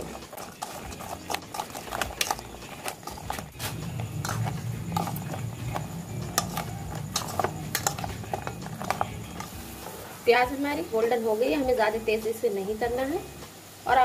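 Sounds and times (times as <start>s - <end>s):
spoon scraping steel bowl: 0.0s - 10.3s
steady low hum: 0.0s - 10.9s.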